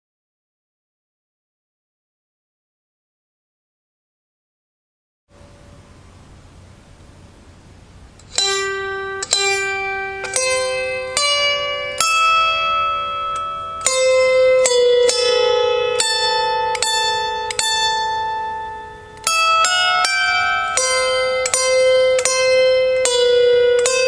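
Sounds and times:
harp plucked notes: 5.3 - 6.4, 8.1 - 24.0.

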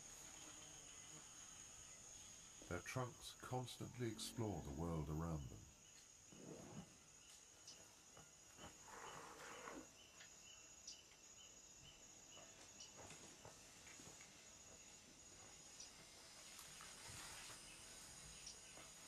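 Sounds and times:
high insect trill: 0.0 - 19.0
short insect chirps: 0.0 - 19.0
soft rustle: 16.3 - 19.0.

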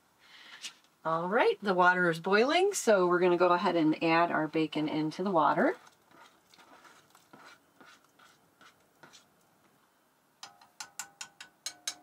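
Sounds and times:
light taps and scrapes: 5.8 - 9.8
metal utensil clinking on pot: 10.4 - 12.0.

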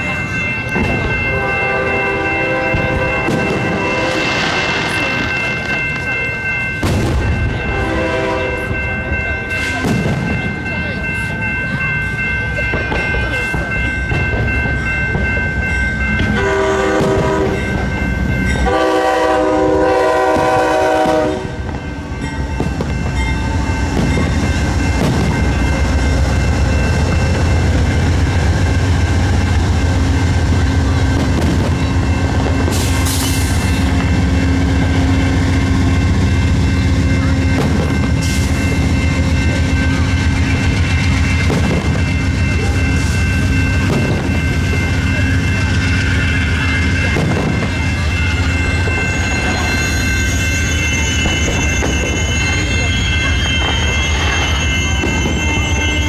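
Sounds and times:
crossing bell ringing: 0.0 - 56.0
train engine and wheels rumbling: 0.0 - 56.0
train horn blasts: 1.3 - 4.4, 7.7 - 8.8, 16.2 - 17.8, 18.5 - 21.6.

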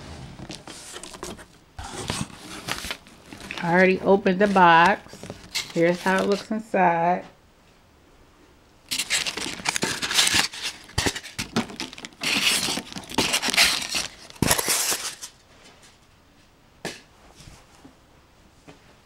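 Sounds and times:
plastic bags crinkling: 0.4 - 6.6, 8.9 - 15.4.

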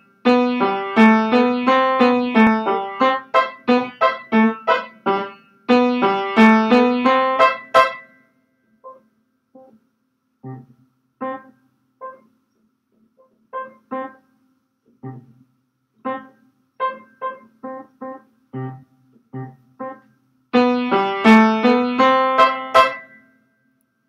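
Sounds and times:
upright piano tune: 0.0 - 8.2, 10.4 - 12.3, 13.5 - 14.3, 16.0 - 23.2.

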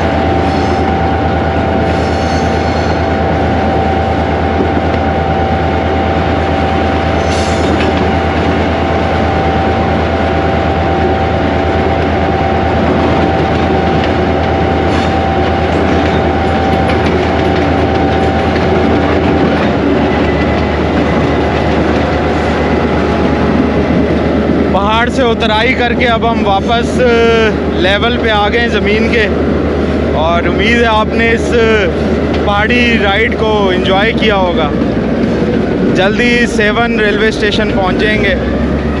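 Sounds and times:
locomotive engine drone: 0.0 - 39.0
steady whine: 0.0 - 39.0
wheel noise on track: 0.0 - 39.0.

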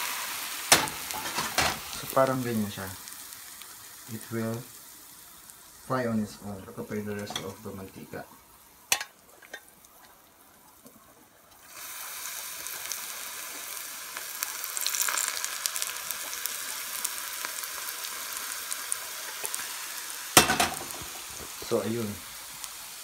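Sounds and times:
hot oil sizzling: 0.0 - 23.0
small crackles: 12.6 - 19.7, 20.7 - 22.8.

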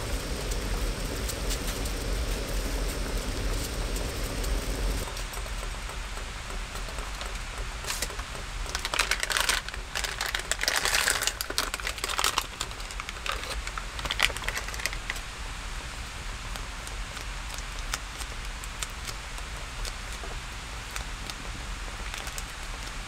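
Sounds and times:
background hiss: 0.0 - 23.0
foil packet crinkling and tearing: 8.7 - 15.3, 16.5 - 22.9.

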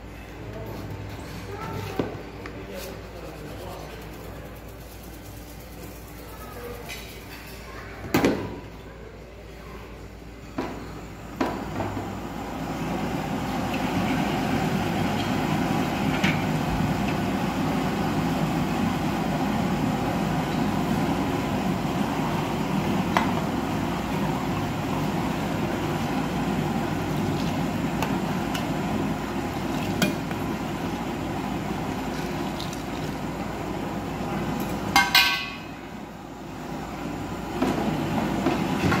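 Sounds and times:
milk tea boiling in a pan: 12.2 - 36.1.

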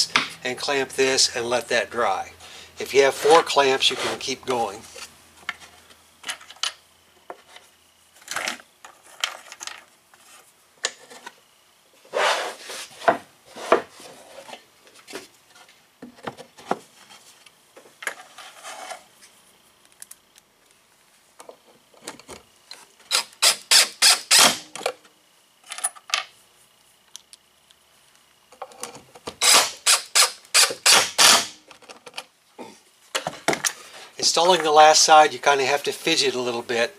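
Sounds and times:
cordless drill driving screws: 23.1 - 24.6, 29.4 - 31.5.

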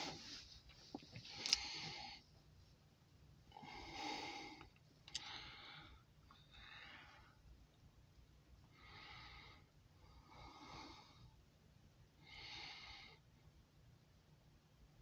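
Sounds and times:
faint breaths: 0.0 - 2.5, 3.5 - 7.6, 8.6 - 11.5, 12.2 - 13.5.

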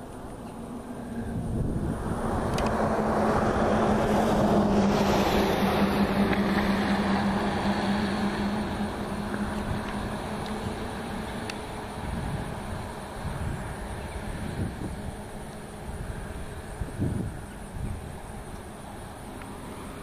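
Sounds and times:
road vehicle passing: 0.0 - 20.0.

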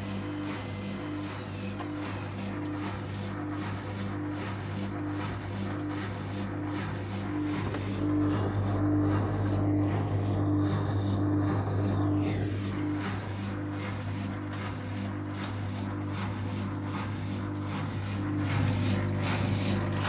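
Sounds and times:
drain pump humming: 0.0 - 20.0.

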